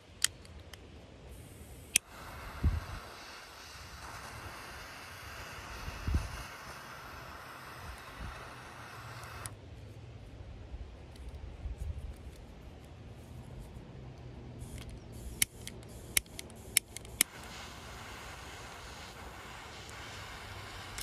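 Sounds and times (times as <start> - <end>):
torch igniter clicks: 1.4 - 9.6, 14.6 - 21.0.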